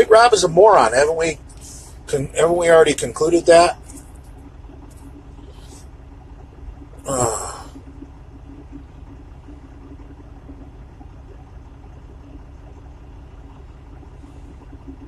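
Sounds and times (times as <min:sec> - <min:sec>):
steady hum: 0:00.0 - 0:15.0
truck engine rumble: 0:00.0 - 0:15.0.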